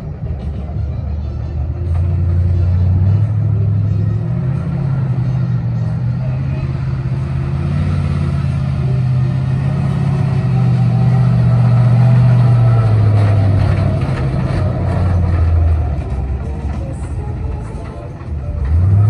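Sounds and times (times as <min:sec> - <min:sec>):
truck engine passing by: 0:00.0 - 0:19.0.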